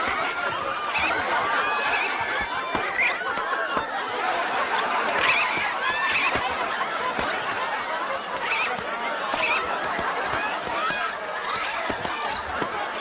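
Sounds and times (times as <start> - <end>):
studio audience laughing: 0.0 - 13.0
high-pitched shrieks and yelps: 0.8 - 3.3, 5.2 - 6.4.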